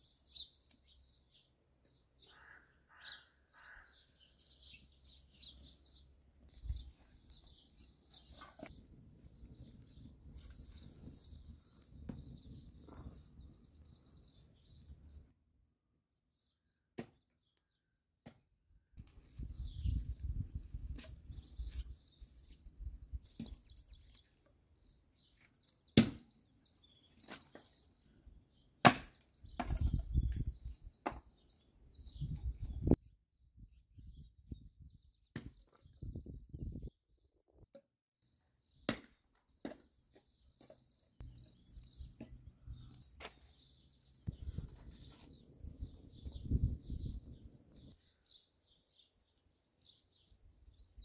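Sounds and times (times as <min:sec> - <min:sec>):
small birds chirping: 0:00.0 - 0:15.3, 0:18.7 - 0:51.0
axe splitting firewood: 0:25.9 - 0:26.3, 0:28.8 - 0:30.0.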